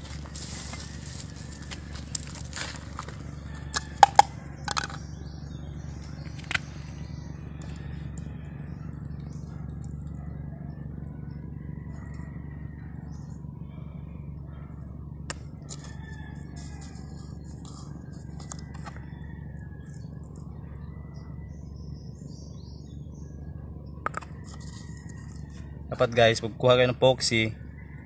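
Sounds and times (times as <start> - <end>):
steady low hum: 0.0 - 28.0
metal tins clicking and tapping: 4.0 - 5.0.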